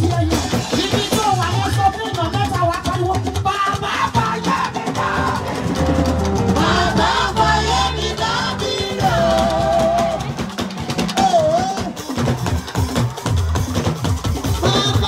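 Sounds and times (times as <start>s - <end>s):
bass and percussion: 0.0s - 15.0s
women singing into microphones: 4.1s - 10.6s, 14.6s - 15.0s.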